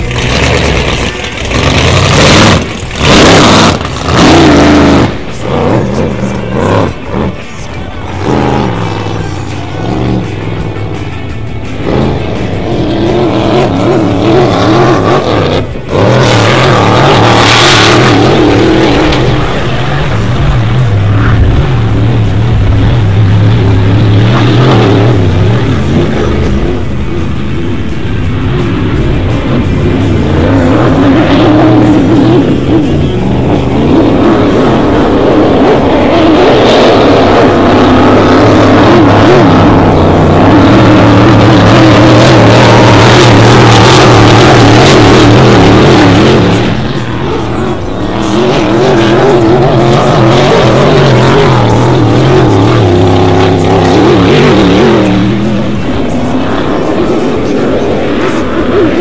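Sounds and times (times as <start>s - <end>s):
boat engine running hard: 0.0s - 59.0s.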